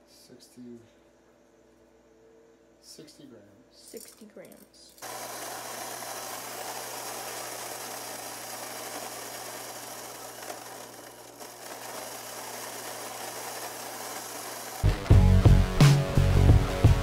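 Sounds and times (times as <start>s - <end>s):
electric coffee grinder running: 5.0s - 17.0s.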